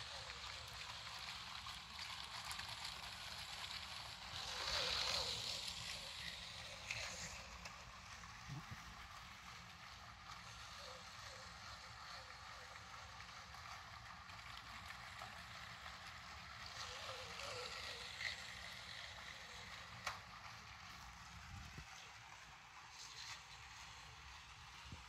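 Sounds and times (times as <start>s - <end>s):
toy train motor whirring: 0.0s - 25.0s
wheels rattling on plastic track: 0.0s - 25.0s.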